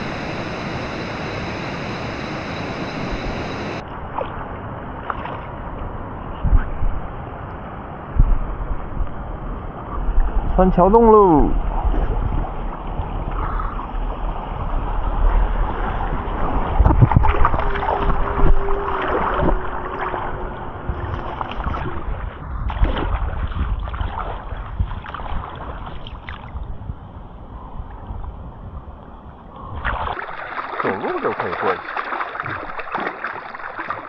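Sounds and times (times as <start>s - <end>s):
river water rushing and gurgling: 0.0s - 6.2s, 14.1s - 26.6s, 29.8s - 34.0s
wind buffeting microphone: 0.0s - 30.2s.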